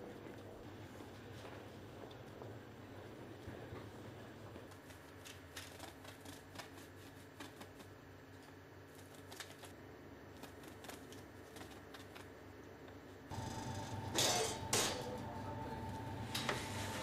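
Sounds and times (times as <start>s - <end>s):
low steady hum: 7.8s - 17.0s.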